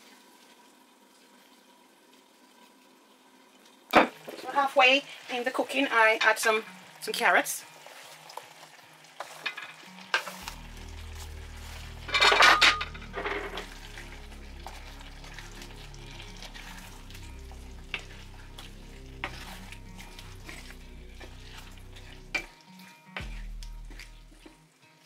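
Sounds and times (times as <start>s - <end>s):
curry simmering and sizzling: 0.0s - 25.0s
wooden spoon stirring: 7.8s - 24.6s
carrots clattering into pan: 9.2s - 10.6s, 12.0s - 13.8s.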